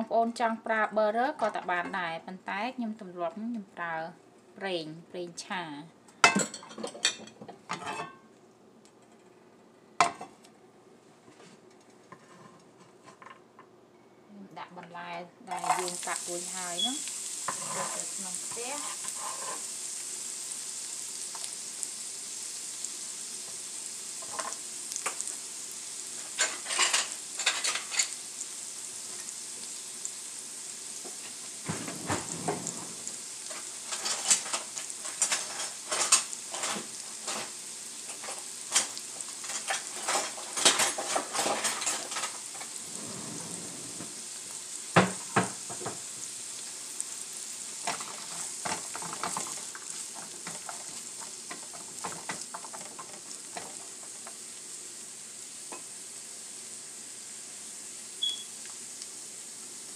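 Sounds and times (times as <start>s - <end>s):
vegetables sizzling in oil: 14.6s - 59.9s.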